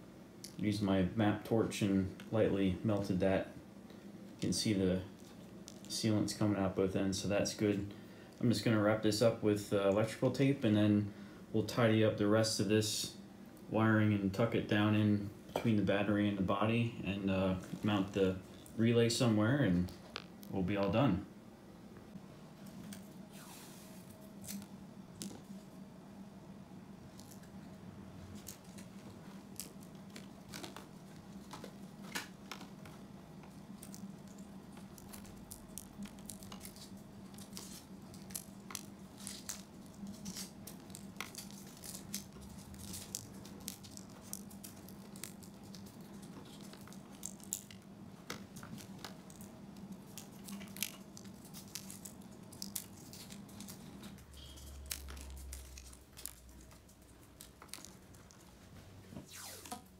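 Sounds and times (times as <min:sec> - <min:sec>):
hands handling wiring connectors: 0:28.3 - 0:58.8.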